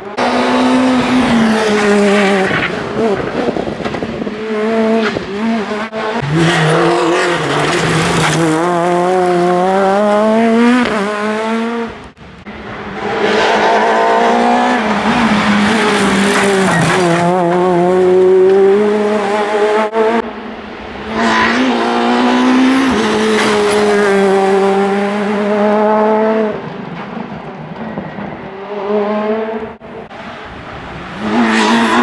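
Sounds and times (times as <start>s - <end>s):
rally car engine accelerating: 0.0s - 20.3s.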